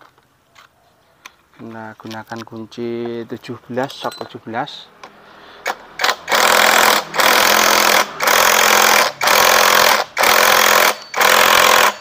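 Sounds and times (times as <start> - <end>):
impact wrench hammering: 5.6 - 12.0.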